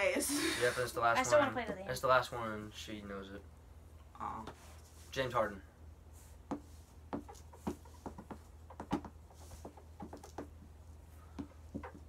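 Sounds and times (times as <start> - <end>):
markers writing on boards: 6.2 - 10.7.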